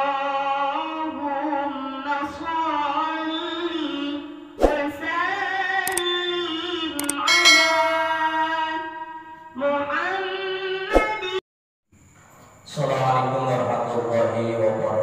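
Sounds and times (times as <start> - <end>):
mouse-click sound effects: 7.0 - 7.2.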